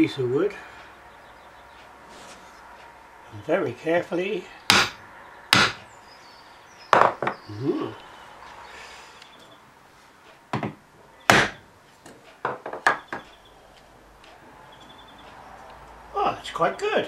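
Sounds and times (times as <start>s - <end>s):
hammer knocking on metal: 4.7s - 5.9s, 10.5s - 11.6s.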